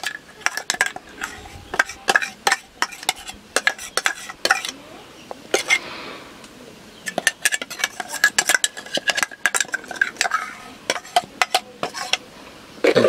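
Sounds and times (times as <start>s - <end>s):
spoon scraping metal jar: 0.0s - 4.8s, 5.5s - 5.8s, 7.0s - 12.2s.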